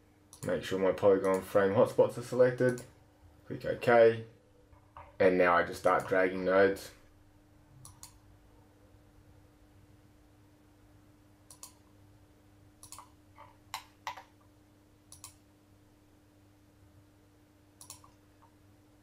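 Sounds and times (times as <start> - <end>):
faint steady hum: 0.0 - 19.0
computer mouse buttons clicking: 7.8 - 8.2, 11.5 - 11.9, 12.8 - 14.4, 15.1 - 15.4, 17.8 - 18.5.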